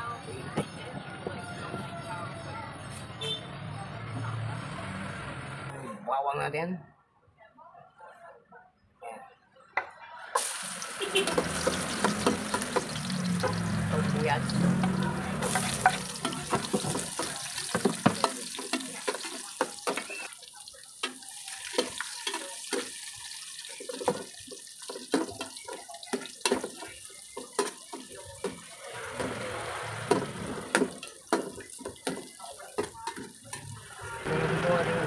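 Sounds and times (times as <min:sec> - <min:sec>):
onion sizzling in a pot: 0:10.4 - 0:34.6.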